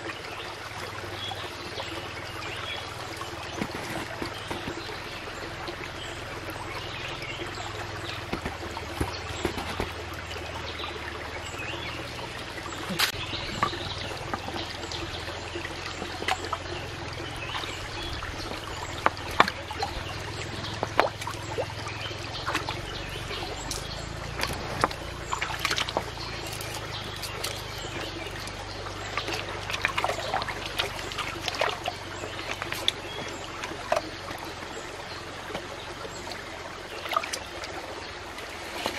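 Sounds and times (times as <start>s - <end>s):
stream trickling over rocks: 0.0s - 38.9s
hands splashing in water: 8.0s - 10.1s.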